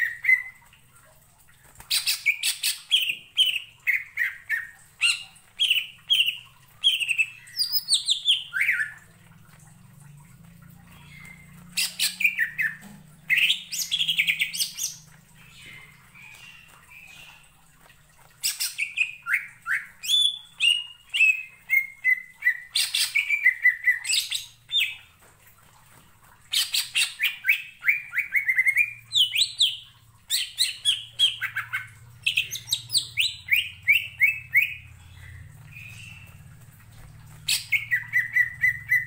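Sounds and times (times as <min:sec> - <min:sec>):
faint low hum: 0:03.3 - 0:22.6, 0:31.0 - 0:39.0.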